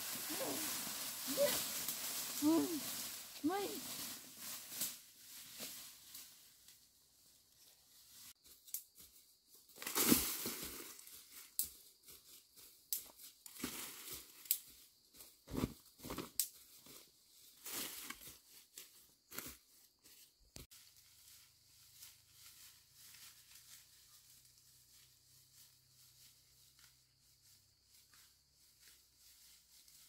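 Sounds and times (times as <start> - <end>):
footsteps crunching dry leaves: 0.0 - 6.7, 16.6 - 30.0.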